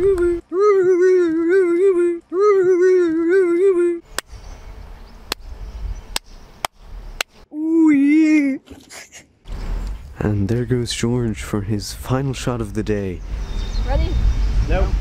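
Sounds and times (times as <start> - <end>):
faint wind rumble: 4.0 - 7.8, 9.5 - 15.0.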